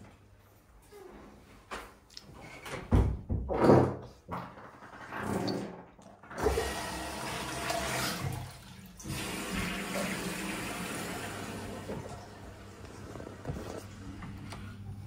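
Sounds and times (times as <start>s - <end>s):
toilet flushing: 5.0s - 15.0s.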